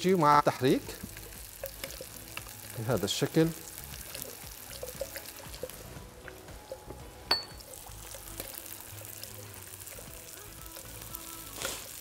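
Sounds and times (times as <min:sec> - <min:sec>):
sharp metallic clink: 0:07.3 - 0:07.6.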